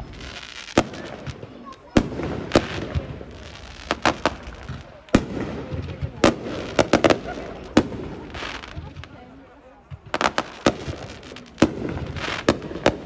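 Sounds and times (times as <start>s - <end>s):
fireworks bangs: 0.0s - 13.0s
fireworks crackling: 0.0s - 13.0s.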